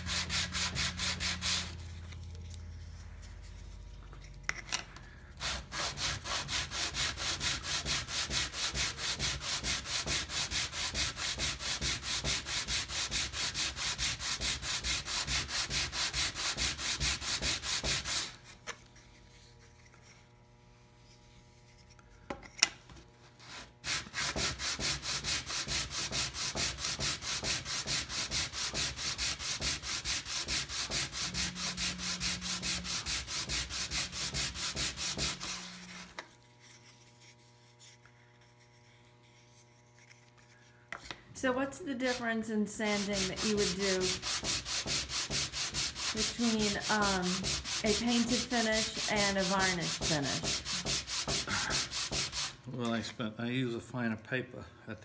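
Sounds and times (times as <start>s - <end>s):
wood rasping on sandpaper: 0.0s - 1.9s, 5.4s - 18.4s, 23.4s - 40.6s, 41.5s - 52.6s.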